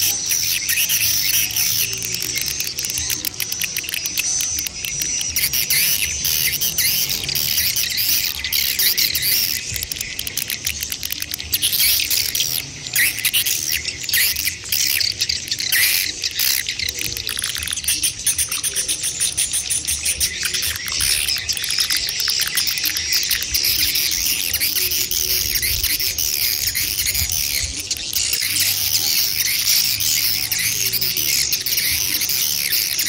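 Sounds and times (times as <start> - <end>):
rapid clicking: 0.0 - 33.0
swiftlets chirping: 0.0 - 33.0.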